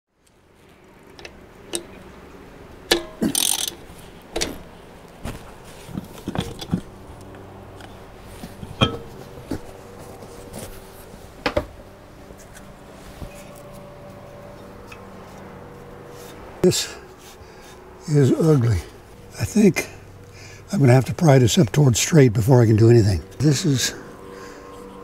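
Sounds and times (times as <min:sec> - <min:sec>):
faint steady hum: 0:00.2 - 0:25.0
tools clinking on metal: 0:02.9 - 0:04.6, 0:08.6 - 0:09.3
short rustle: 0:03.8 - 0:07.3.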